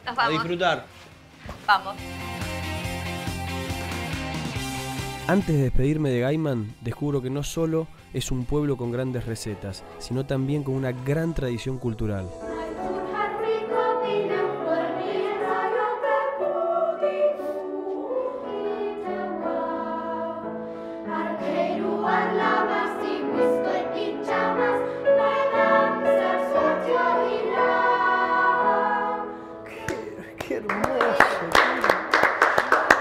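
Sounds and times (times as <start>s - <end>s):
girls choir singing: 12.4s - 29.9s.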